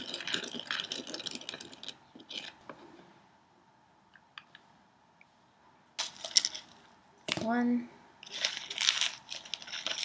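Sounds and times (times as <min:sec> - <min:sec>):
stirrer scraping plastic cup: 0:00.0 - 0:02.8.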